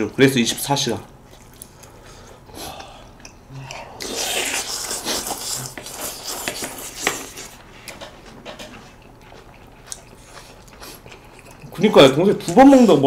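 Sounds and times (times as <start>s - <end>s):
chewing: 1.2s - 13.0s
noodles slurped: 4.0s - 7.6s.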